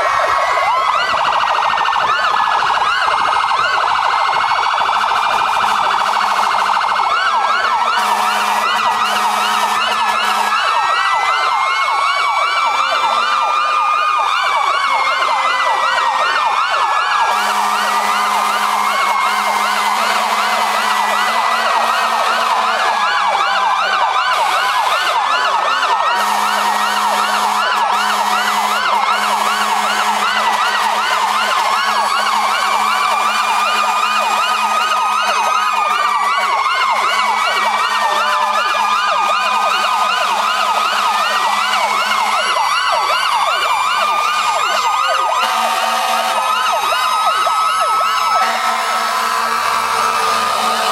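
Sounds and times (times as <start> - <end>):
sirens yelping and wailing: 0.0 - 50.9
low horn blasts: 5.0 - 6.8, 8.0 - 10.7, 17.3 - 23.0, 26.2 - 35.2, 45.4 - 46.5, 48.4 - 50.9.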